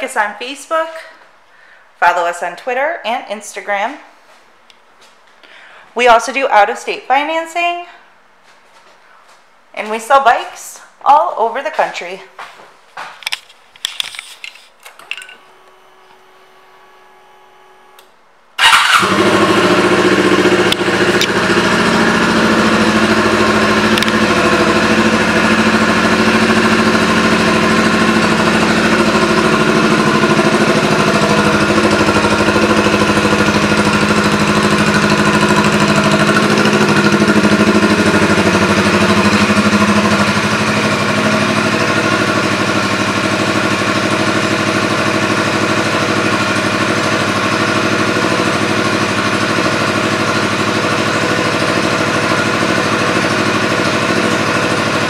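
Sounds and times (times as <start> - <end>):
motorcycle engine starting and idling: 14.2 - 55.0.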